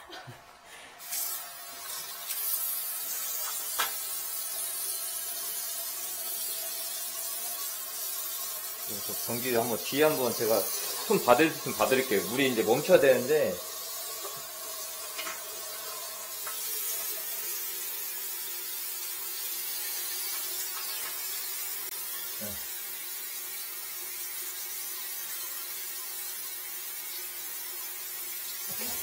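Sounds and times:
water running: 1.0s - 29.0s.

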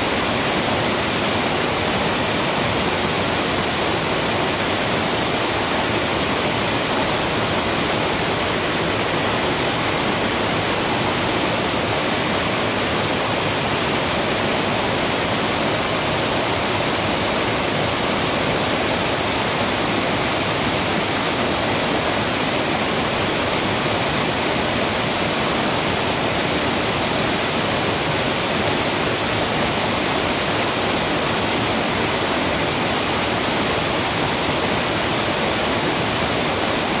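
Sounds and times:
waterfall rushing over boulders: 0.0s - 37.0s.

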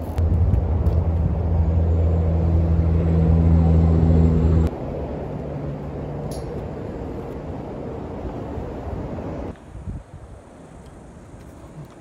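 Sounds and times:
low engine hum: 0.0s - 9.5s.

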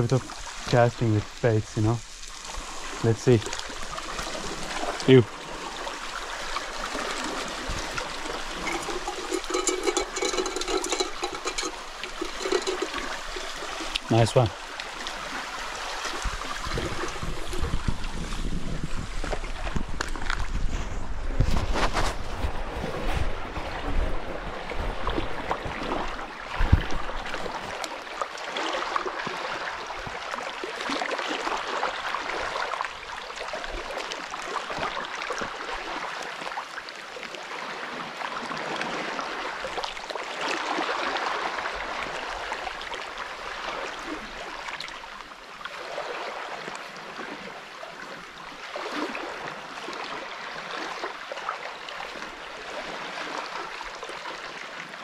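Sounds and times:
small waves lapping on stones: 0.1s - 18.3s.

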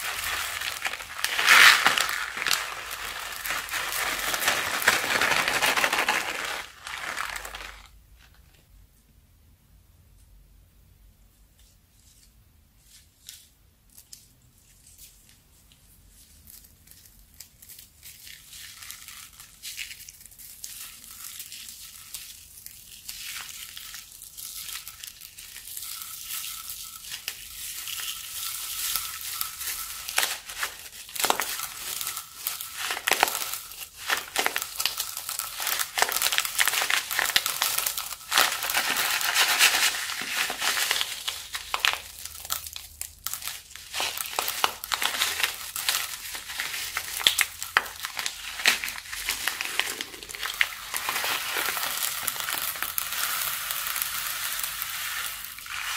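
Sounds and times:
beads rattling and clicking: 0.0s - 7.9s, 23.1s - 55.9s
plastic bag crinkling: 0.0s - 8.6s, 16.8s - 55.9s.

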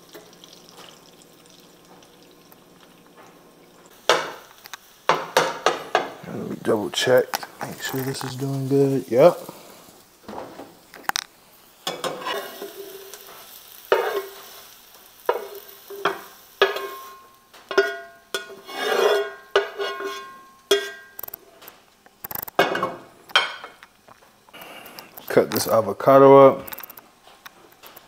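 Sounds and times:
utensil scraping a frying pan: 11.8s - 21.7s.

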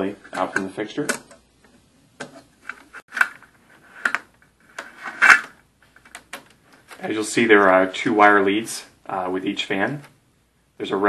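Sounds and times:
plastic clicks: 4.0s - 7.0s.

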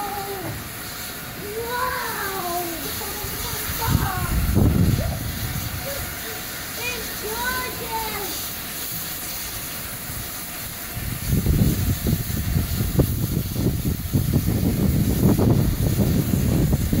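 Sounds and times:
loud uneven low rumble: 0.0s - 8.3s
steam locomotive hissing: 0.0s - 17.0s.

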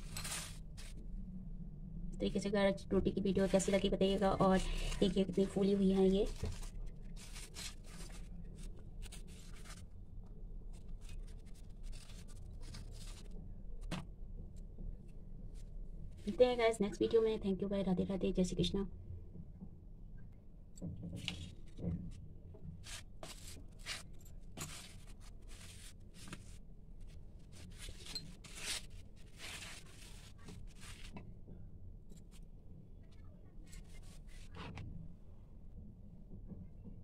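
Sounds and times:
rotis rustling on steel plate: 0.0s - 1.0s, 3.5s - 9.9s, 22.8s - 31.2s
faint low hum: 0.0s - 37.0s.

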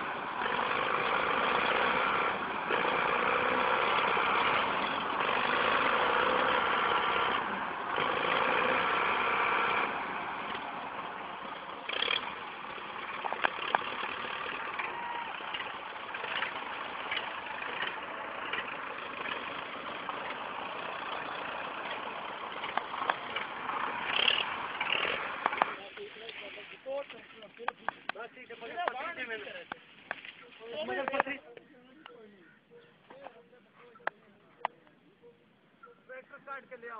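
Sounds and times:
tractor diesel engine under load: 0.0s - 31.4s
sharp clicks and knocks: 13.2s - 14.0s, 22.6s - 25.8s.

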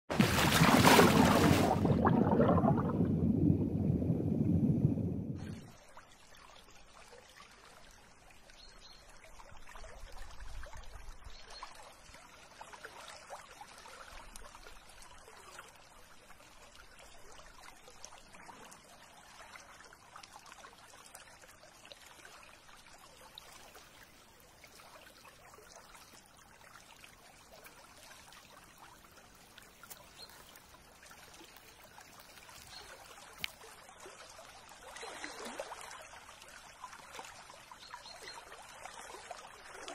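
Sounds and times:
low rumble: 1.9s - 5.4s
water trickling: 5.4s - 39.9s.

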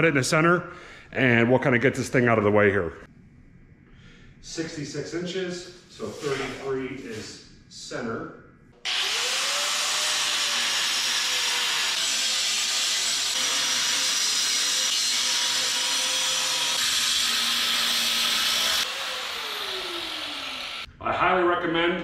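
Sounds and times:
angle grinder cutting steel: 8.8s - 20.9s
grinder winding down: 8.8s - 20.9s.

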